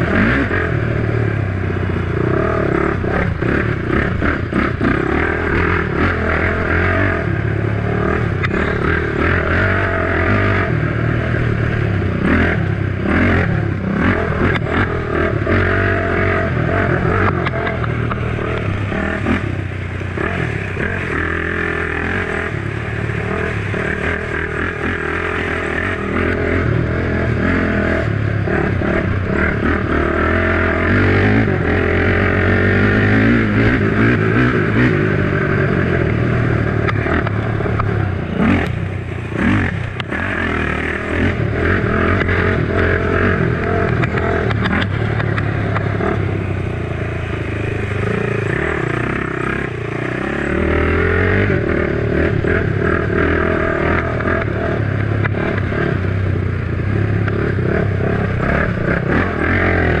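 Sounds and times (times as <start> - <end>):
quad engine revving: 0.0 - 60.0.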